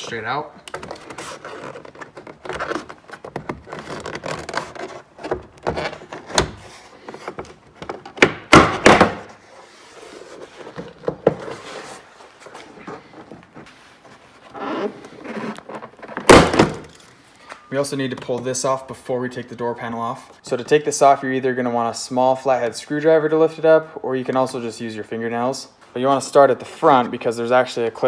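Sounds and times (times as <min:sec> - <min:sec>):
plastic rubbing: 0:00.6 - 0:08.2.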